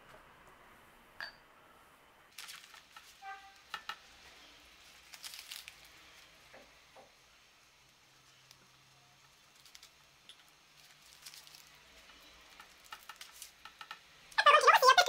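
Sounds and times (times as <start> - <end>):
paper and pastry crinkling: 2.3 - 6.5, 8.1 - 13.8.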